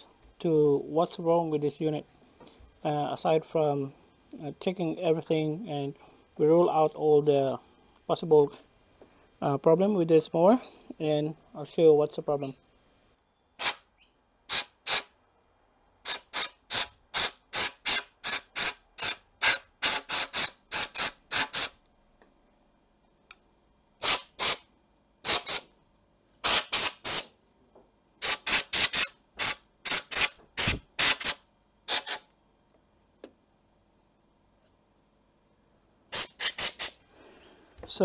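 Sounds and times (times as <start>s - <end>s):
air blow gun hissing blasts: 13.6s - 13.9s, 14.5s - 15.2s, 24.0s - 25.7s, 26.4s - 27.3s, 28.2s - 32.3s, 36.1s - 37.0s.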